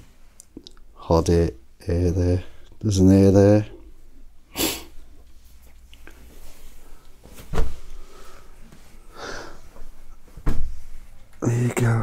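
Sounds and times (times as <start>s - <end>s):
fabric rustling: 5.0s - 11.4s.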